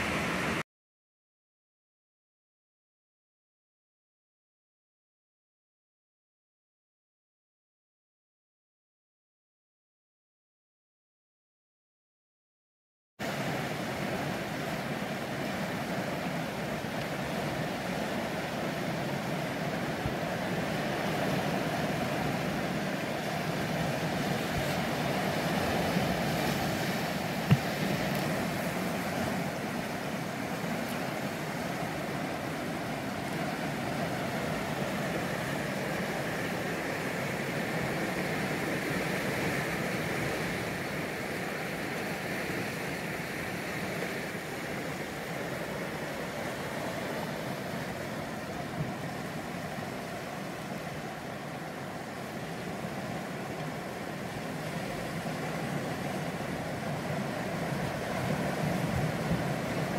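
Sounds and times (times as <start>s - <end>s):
surf washing over rocks: 0.0s - 0.6s, 13.2s - 59.9s.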